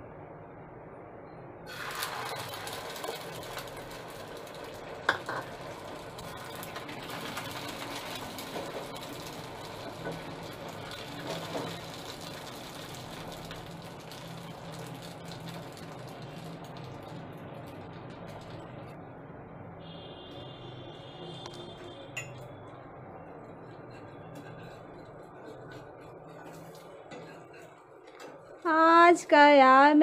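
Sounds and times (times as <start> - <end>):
egg batter sizzling on a pan: 1.7 - 19.2, 19.8 - 29.2.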